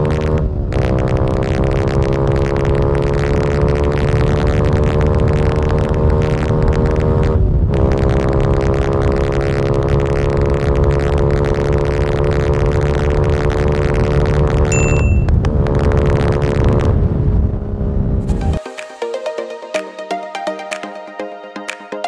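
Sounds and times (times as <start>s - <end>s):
motorcycle engine high revs: 0.0s - 14.7s.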